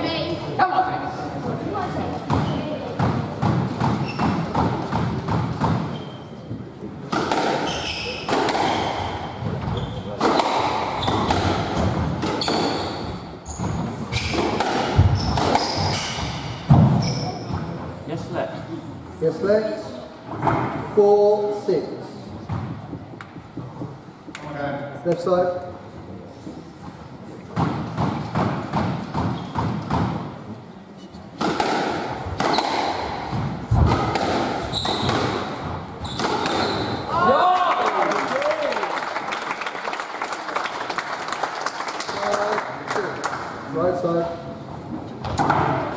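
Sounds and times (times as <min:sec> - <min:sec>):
shoes squeaking: 0:03.7 - 0:06.7, 0:07.3 - 0:17.8, 0:29.3 - 0:29.9, 0:32.4 - 0:37.1
squash ball cracks: 0:07.1 - 0:09.1, 0:10.2 - 0:12.7, 0:14.2 - 0:16.9, 0:31.4 - 0:36.9.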